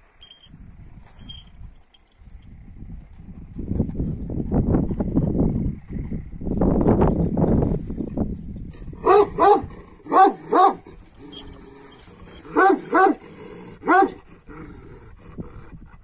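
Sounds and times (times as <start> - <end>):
large dog barking: 9.0 - 14.7.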